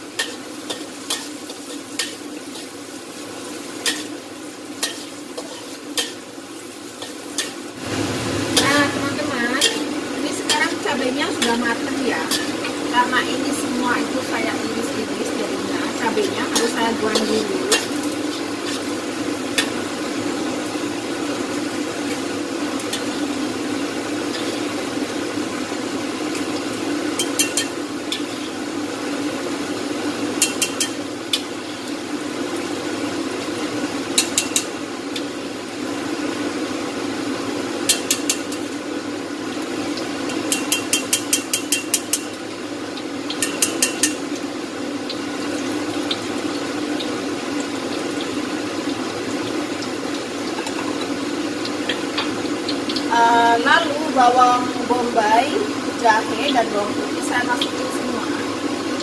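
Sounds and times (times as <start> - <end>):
oil sizzling in a wok: 0.0 - 59.0
metal spatula clinking: 9.6 - 9.9, 16.2 - 18.1, 27.2 - 28.4, 30.4 - 31.4, 40.5 - 42.4, 43.4 - 44.2.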